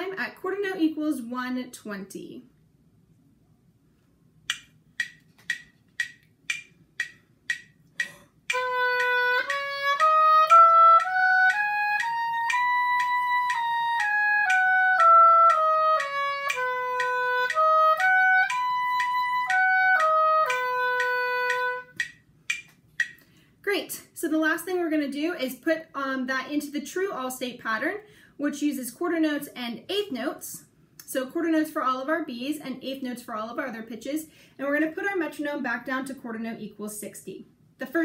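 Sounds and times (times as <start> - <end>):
metronome clicks: 4.5 - 23.3
oboe playing scales: 8.5 - 22.1.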